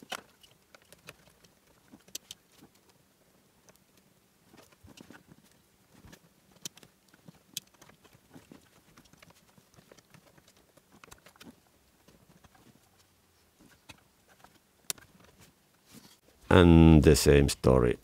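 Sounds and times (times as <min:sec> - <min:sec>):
wires and plastic connectors clicking: 0:00.0 - 0:03.0, 0:03.6 - 0:13.1, 0:13.7 - 0:15.4.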